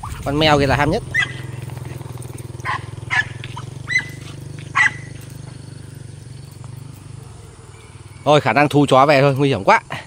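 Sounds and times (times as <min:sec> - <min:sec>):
dogs barking: 0:01.1 - 0:08.3.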